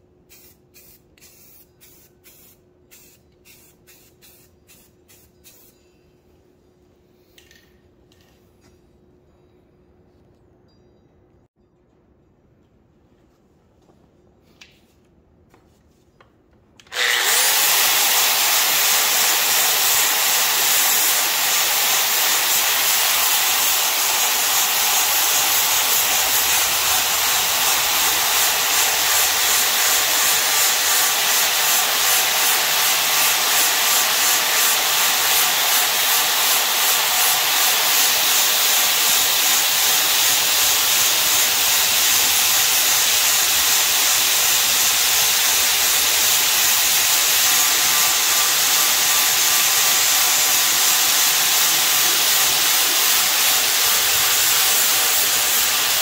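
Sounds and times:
sandblaster hissing: 17.0s - 56.0s.

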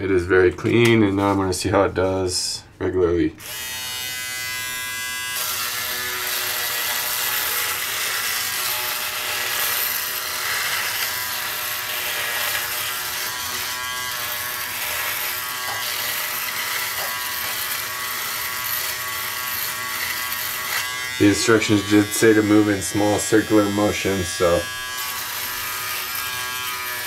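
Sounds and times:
electric shaver buzzing: 3.4s - 27.0s
shaver cutting whiskers: 3.4s - 27.0s.

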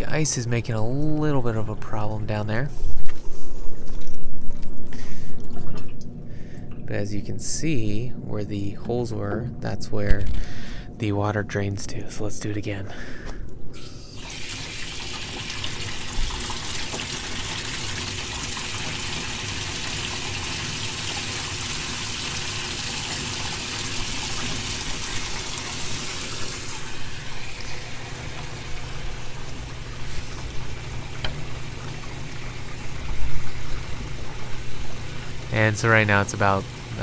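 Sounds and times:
hose water splashing into tub: 14.2s - 37.0s.

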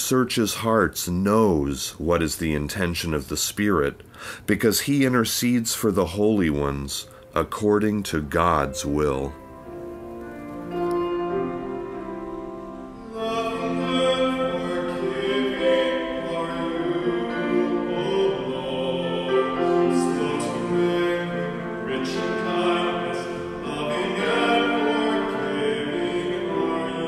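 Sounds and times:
sustained instrumental chords: 8.4s - 27.0s
voices singing a hymn: 13.0s - 27.0s.

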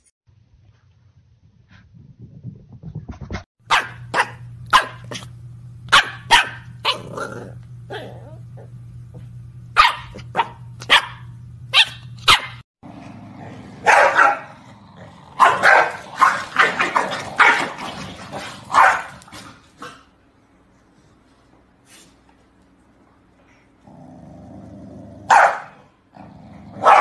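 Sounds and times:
small dogs barking: 3.7s - 5.3s, 5.9s - 7.2s, 9.8s - 12.6s, 13.8s - 14.7s, 15.3s - 17.8s, 18.6s - 19.3s, 25.3s - 25.9s, 26.8s - 27.0s.

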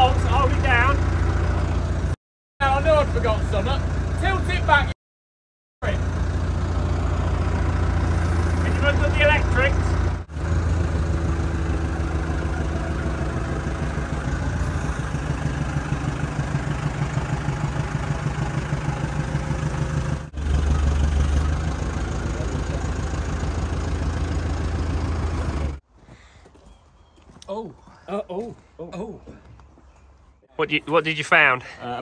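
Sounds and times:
diesel engine running: 0.0s - 5.0s, 5.8s - 25.8s.

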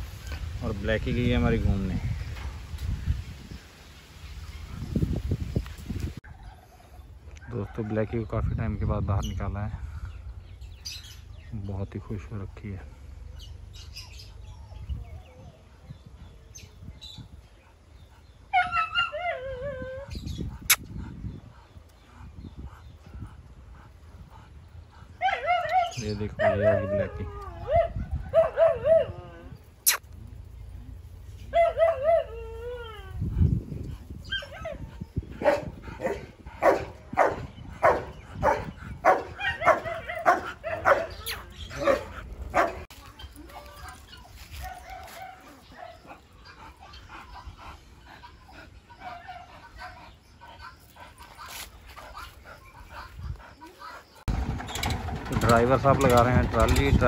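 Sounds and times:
dog yelping: 18.5s - 20.1s, 25.2s - 29.3s, 31.5s - 32.9s, 34.2s - 42.9s
dog barking: 35.4s - 42.9s.

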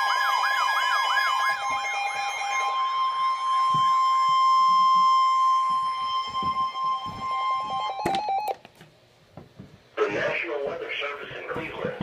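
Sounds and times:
steady alarm tone: 0.0s - 8.6s.

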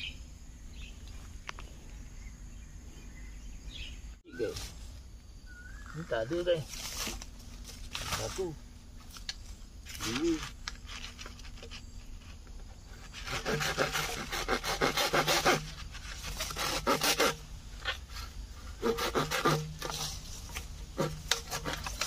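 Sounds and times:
hand saw cutting bamboo: 12.9s - 22.0s.

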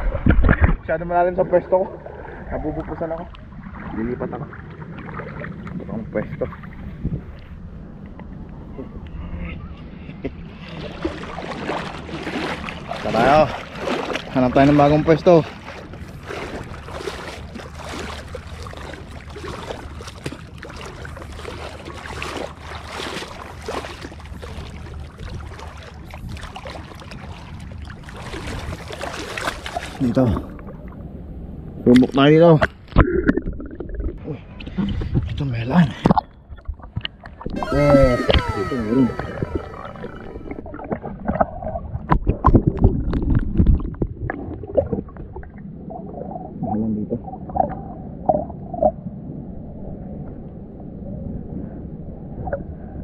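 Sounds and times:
water splashing from wading: 10.5s - 31.0s, 36.0s - 46.3s.

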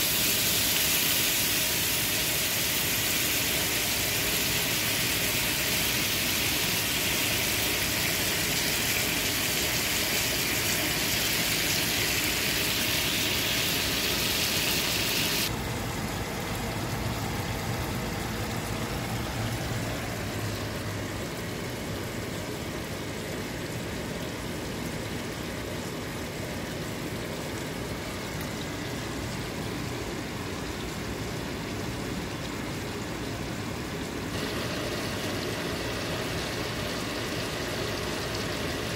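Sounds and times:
fish sizzling in a frying pan: 0.0s - 15.5s.

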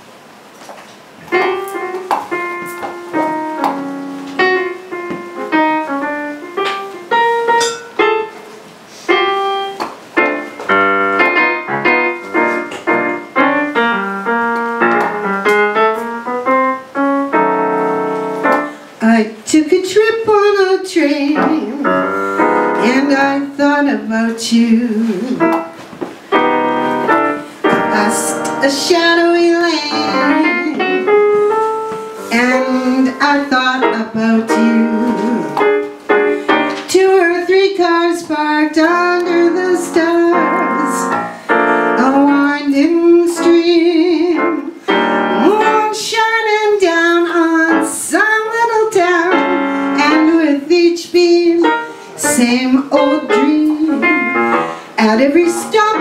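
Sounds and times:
piano: 0.0s - 56.0s
woman singing with vibrato: 19.0s - 22.1s, 22.8s - 25.5s, 27.8s - 31.2s, 32.2s - 35.6s, 36.8s - 41.3s, 41.9s - 56.0s.

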